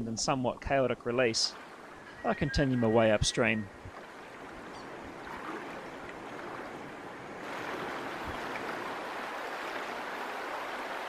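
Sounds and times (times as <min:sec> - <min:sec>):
stream running over stones: 0:07.4 - 0:11.0.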